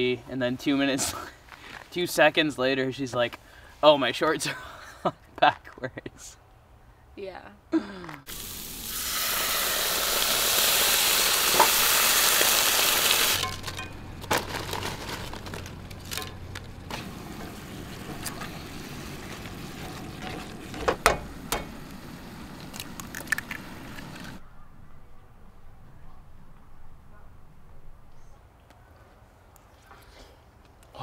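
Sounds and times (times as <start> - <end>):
sauce sizzling in a skillet: 8.3 - 13.5
tongs clicking and scraping pan: 13.4 - 18.5.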